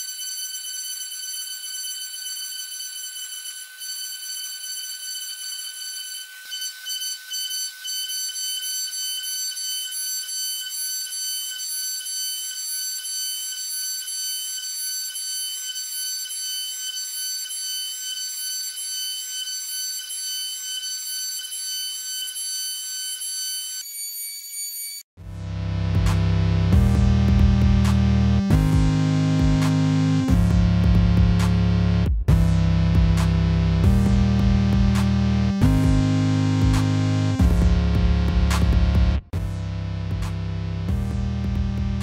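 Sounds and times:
engraving spindle whine: 0:02.4 - 0:24.9.

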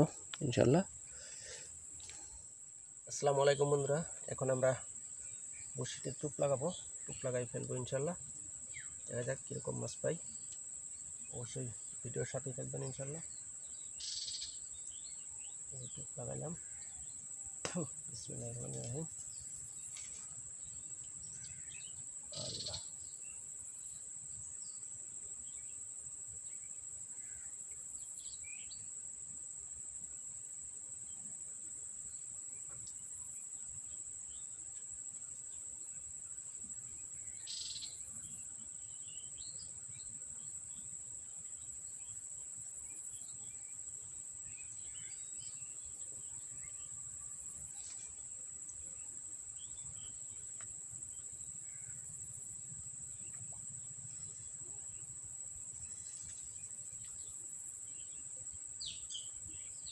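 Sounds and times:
insects droning: 0:00.0 - 0:59.9
bird chirps: 0:11.3 - 0:23.4, 0:37.2 - 0:40.1.

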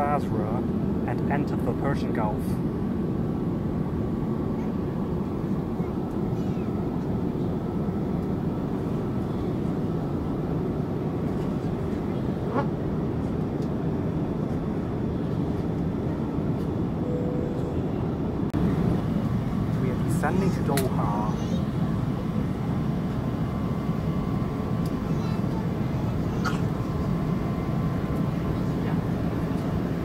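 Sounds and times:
airliner cabin rumble: 0:00.0 - 0:30.0
faint short tone: 0:17.0 - 0:18.1.

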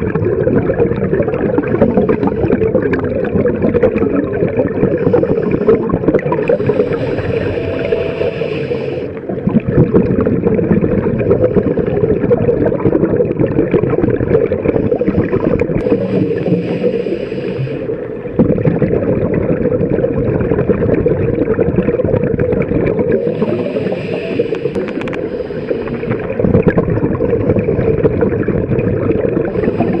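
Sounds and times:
bubbling exhalations: 0:00.0 - 0:30.0
regulator hissing inhalations: 0:05.0 - 0:09.2, 0:15.8 - 0:18.0, 0:23.1 - 0:26.4, 0:29.5 - 0:30.0.

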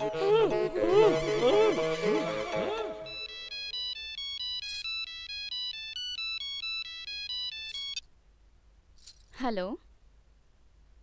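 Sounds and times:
background music: 0:00.0 - 0:07.6
phone ringtone melody: 0:00.0 - 0:08.0.

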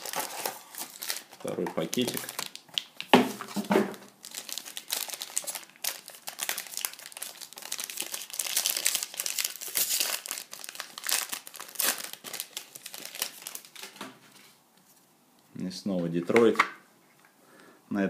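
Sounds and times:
foil wrapper crinkling: 0:00.0 - 0:03.1, 0:04.1 - 0:14.0
wrapper tearing: 0:00.0 - 0:14.0.

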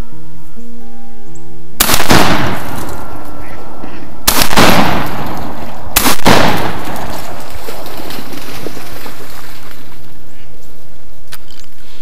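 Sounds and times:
shotgun shot echoing: 0:01.8 - 0:08.0.

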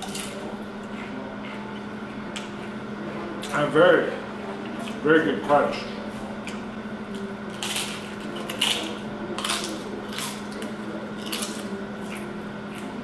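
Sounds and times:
chip crunching being chewed: 0:06.4 - 0:13.0.

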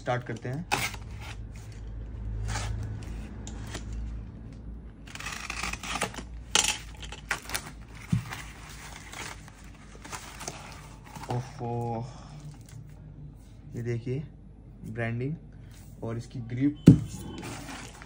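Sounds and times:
paper scraping and rustling: 0:07.2 - 0:11.5, 0:17.1 - 0:18.0.

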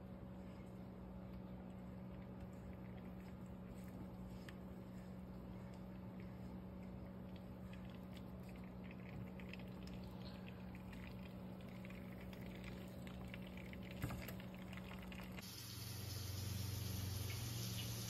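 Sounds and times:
steady low hum: 0:00.0 - 0:18.0
butter sizzling in a frying pan: 0:15.4 - 0:18.0.

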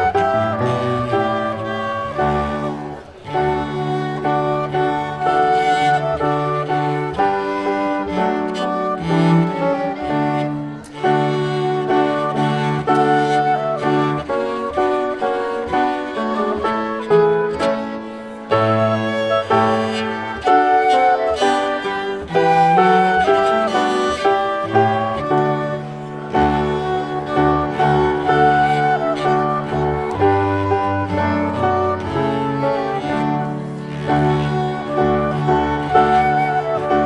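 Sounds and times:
cello low notes: 0:00.0 - 0:37.0
flute: 0:00.0 - 0:37.0
grand piano: 0:00.0 - 0:37.0
violin: 0:00.0 - 0:37.0.

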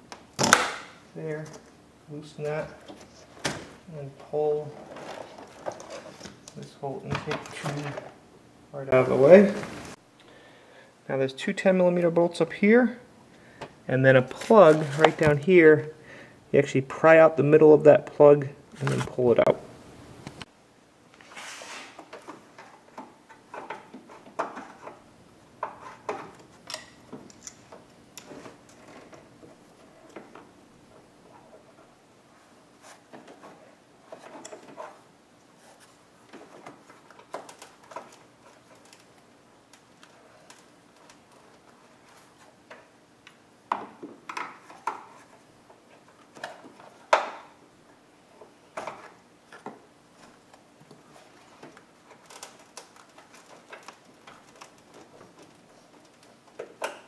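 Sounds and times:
tools clicking and scraping: 0:25.6 - 0:29.1.

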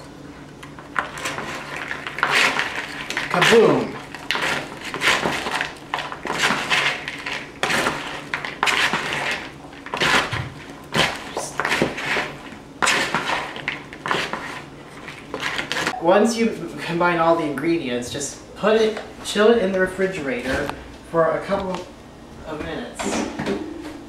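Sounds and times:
utensils scraping in a bowl: 0:01.0 - 0:10.3, 0:10.9 - 0:16.0.

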